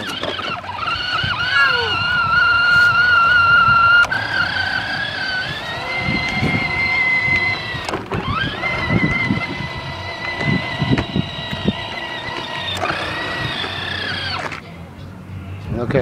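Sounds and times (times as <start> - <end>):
electric toy vehicle motor whine: 0.0 - 14.6.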